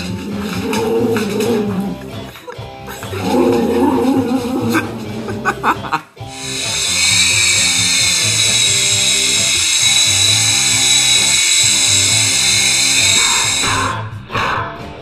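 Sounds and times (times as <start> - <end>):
music: 0.0 - 15.0
toy helicopter motor whine: 6.3 - 13.8.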